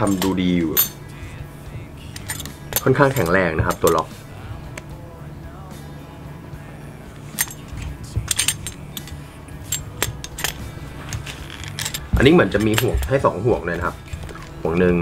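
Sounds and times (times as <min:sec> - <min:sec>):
metal buckle clinking: 0:00.0 - 0:01.2, 0:02.0 - 0:04.9, 0:07.2 - 0:14.8.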